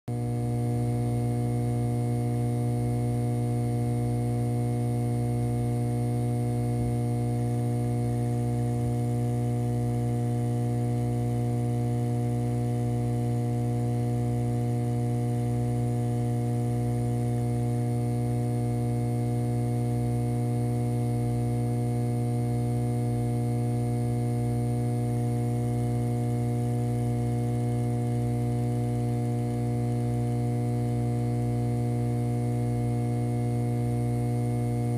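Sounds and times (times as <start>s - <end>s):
electronic hum: 0.1s - 34.9s.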